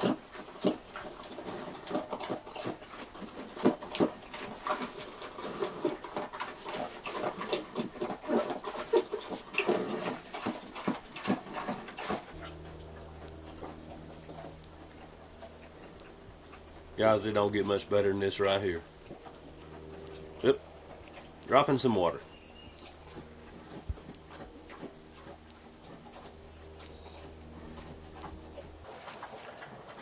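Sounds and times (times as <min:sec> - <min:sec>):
insects chirring: 0:00.0 - 0:30.0
low hum: 0:11.6 - 0:29.4.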